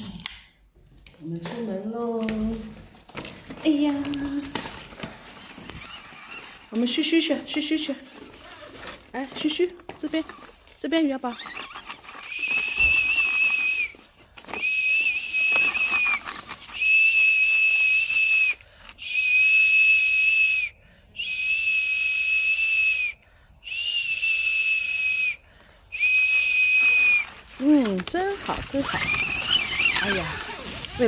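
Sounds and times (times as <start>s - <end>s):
person whistling high note: 12.1s - 27.7s.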